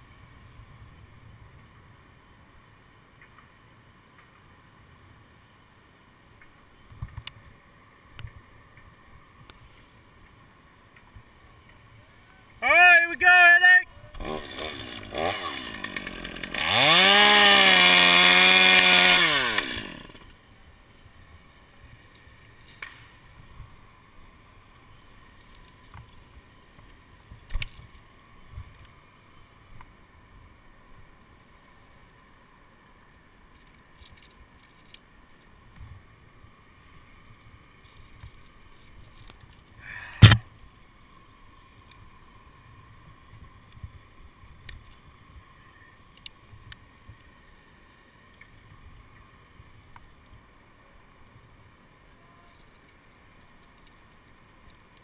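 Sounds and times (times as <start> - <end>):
chainsaw revving: 14.2 - 20.3
faint scattered clicks: 33.5 - 35.9, 41.7 - 42.1, 44.6 - 45.1, 46.0 - 47.3, 52.4 - 55.0.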